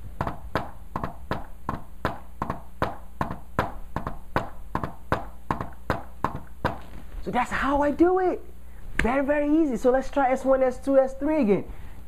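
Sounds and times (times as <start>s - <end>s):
hand tapping on whiteboard: 0.0s - 6.9s.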